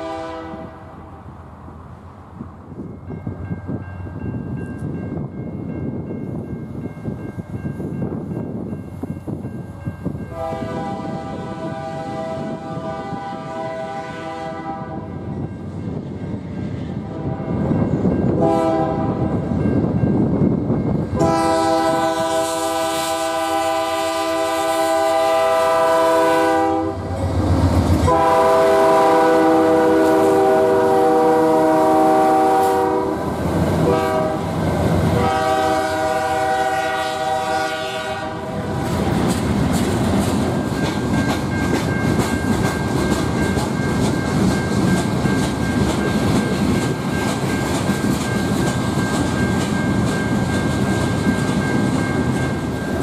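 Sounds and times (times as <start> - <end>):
locomotive air horn blasts: 0.0 - 0.9, 10.3 - 15.2, 17.0 - 17.6, 18.4 - 19.4, 21.2 - 27.3, 28.0 - 33.2, 33.8 - 38.8
train wheels clacking on rail joints: 38.8 - 53.0.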